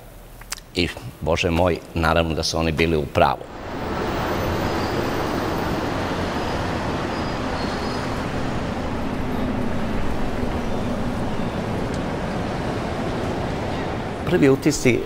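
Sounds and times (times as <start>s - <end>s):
city street traffic: 2.6s - 15.0s
faint engine hum: 3.4s - 15.0s.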